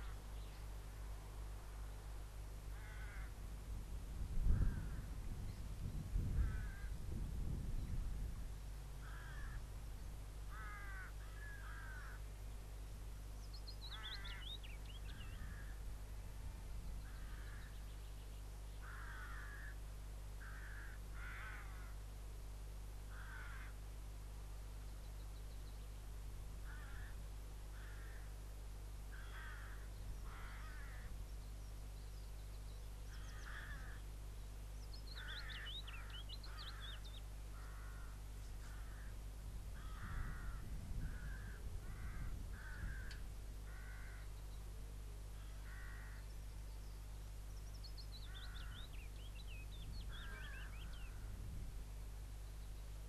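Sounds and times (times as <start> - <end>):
faint low hum: 0.0 - 53.0
crows cawing: 2.7 - 3.4, 4.5 - 5.1, 6.4 - 7.0, 9.0 - 9.7, 10.4 - 12.4, 13.8 - 14.6, 15.3 - 15.9, 17.0 - 17.8, 18.8 - 22.1, 23.1 - 23.8, 26.6 - 28.4, 29.1 - 31.2, 33.1 - 34.1, 35.1 - 44.4, 45.4 - 46.3, 48.1 - 49.0, 50.0 - 51.4.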